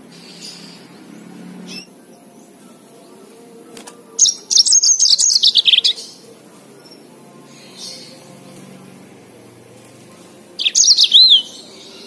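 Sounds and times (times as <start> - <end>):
canary twittering: 0.3 - 2.0, 4.1 - 6.3, 10.5 - 12.0.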